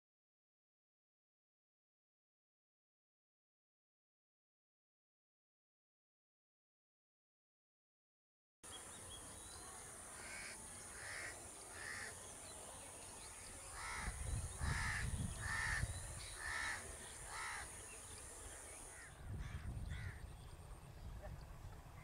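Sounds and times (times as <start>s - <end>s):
bird cawing: 10.2s - 12.2s, 13.7s - 17.9s, 18.8s - 20.2s.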